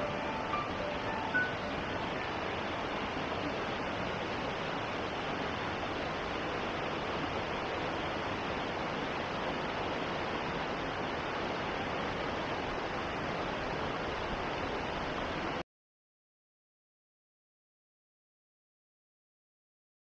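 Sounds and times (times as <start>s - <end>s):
water rushing over rocks: 0.0s - 15.6s.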